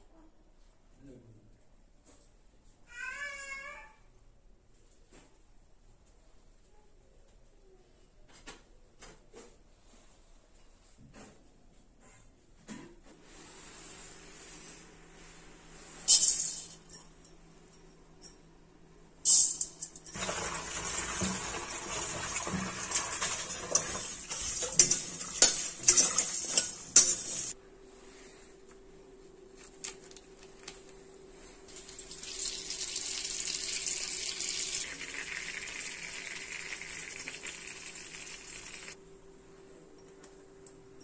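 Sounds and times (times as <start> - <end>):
utensil clinking and scraping pan: 19.3 - 27.6
cooking hiss: 20.2 - 27.6, 31.7 - 39.0.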